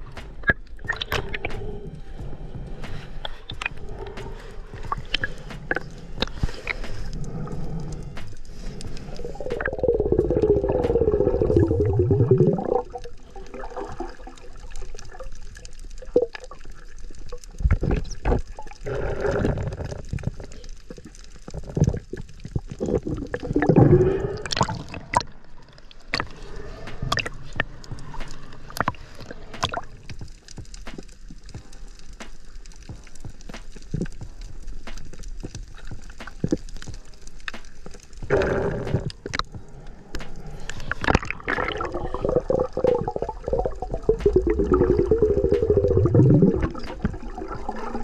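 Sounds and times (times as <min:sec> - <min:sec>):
water gurgling: 0:00.0 - 0:02.7, 0:03.4 - 0:48.0
water sloshing: 0:38.2 - 0:48.0.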